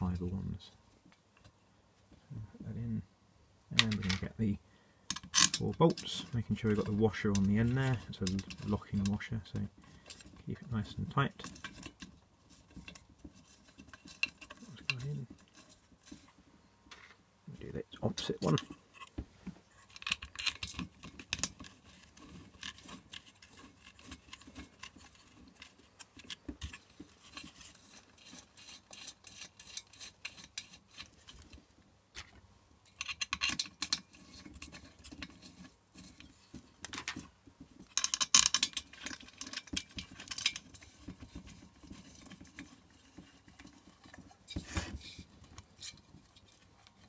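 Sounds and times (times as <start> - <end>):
metal bolts clicking and rattling: 3.8 - 4.3, 5.1 - 12.2, 19.8 - 31.5, 32.2 - 47.0.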